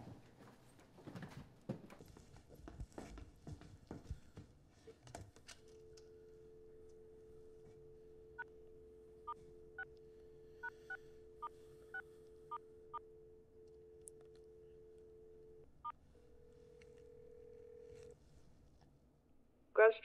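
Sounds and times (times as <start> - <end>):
telephone dial tone: 16.4 - 18.1.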